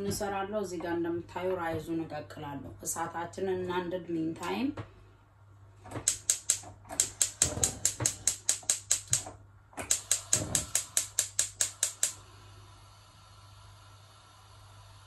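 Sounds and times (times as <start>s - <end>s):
gas igniter clicking: 6.0s - 12.2s
faint gas hiss: 9.9s - 15.0s.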